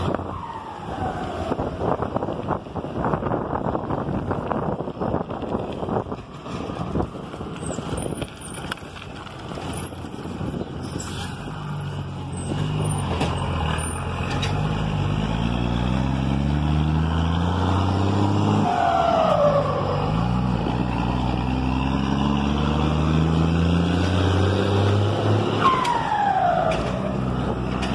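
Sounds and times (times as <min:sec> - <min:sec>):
gusty wind on microphone: 0:00.0 - 0:11.2
road noise: 0:00.0 - 0:27.9
diesel truck engine revving: 0:10.3 - 0:27.9.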